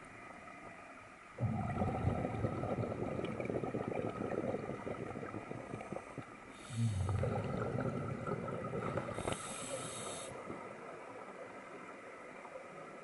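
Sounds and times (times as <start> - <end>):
exhaust bubbles crackling: 1.4 - 9.5
regulator hissing inhalations: 6.5 - 7.3, 8.9 - 10.5.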